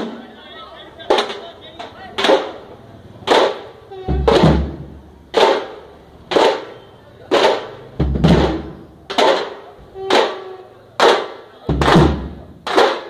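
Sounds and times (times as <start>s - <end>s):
frame drums beaten with sticks: 3.3s - 13.0s.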